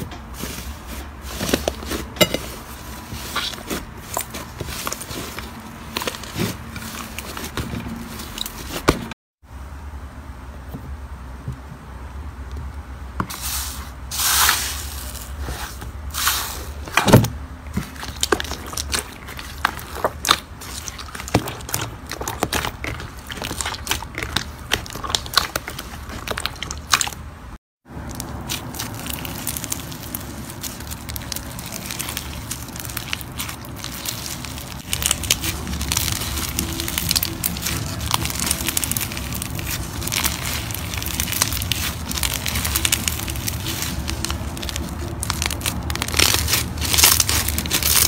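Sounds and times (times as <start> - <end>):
slime crackling and popping: 3.2 - 9.0, 17.7 - 27.2, 28.0 - 48.0.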